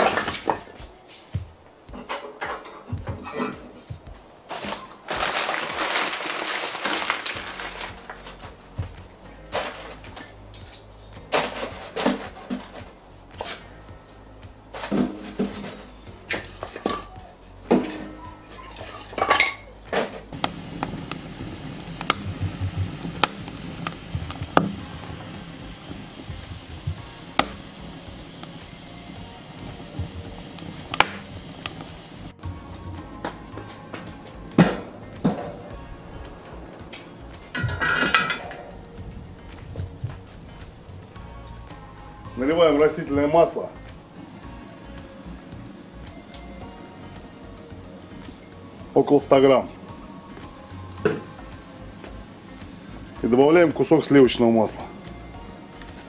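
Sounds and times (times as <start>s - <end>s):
scraping rustle: 0.0s - 13.7s
fire crackling: 0.0s - 56.0s
logs clattering against metal: 1.9s - 3.9s, 9.5s - 13.7s, 14.7s - 17.1s, 17.7s - 21.2s, 36.9s - 38.9s.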